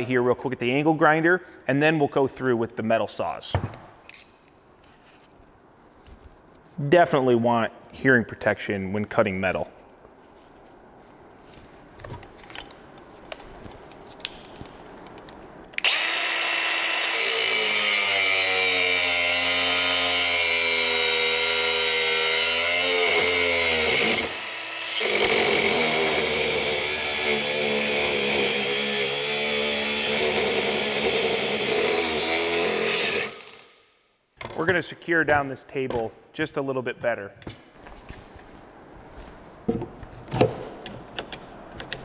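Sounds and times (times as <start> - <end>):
angle grinder cutting steel: 15.8 - 33.6.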